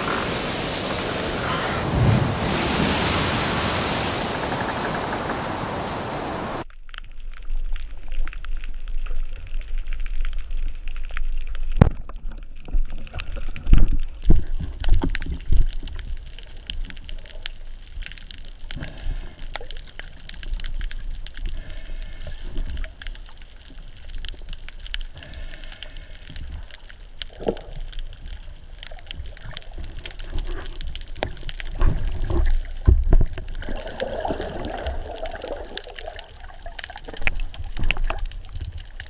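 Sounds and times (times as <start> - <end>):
steady hiss: 0.0 - 6.6.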